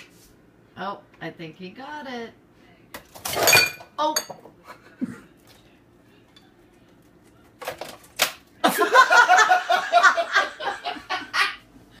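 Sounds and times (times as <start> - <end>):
person laughing hard: 8.6 - 11.6.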